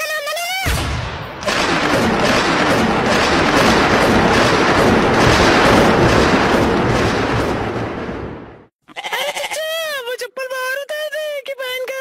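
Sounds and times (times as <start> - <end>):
loud steady rushing noise: 1.4 - 8.7.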